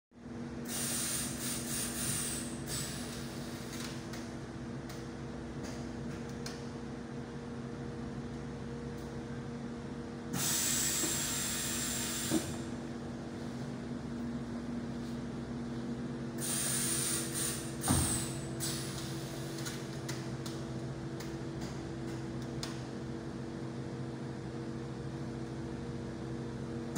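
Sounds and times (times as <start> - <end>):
hiss with high whine: 10.4 - 12.4, 16.4 - 19.4.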